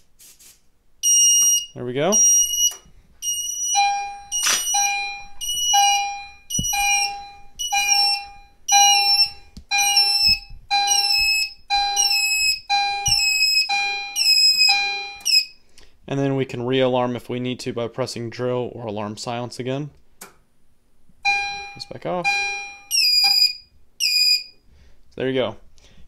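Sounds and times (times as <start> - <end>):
fire alarm chiming: 1.0 - 15.6, 21.2 - 24.6.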